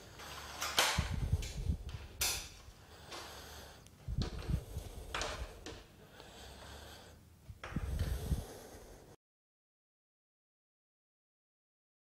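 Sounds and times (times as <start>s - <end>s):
sharp breaths through the nose: 0.0s - 9.2s.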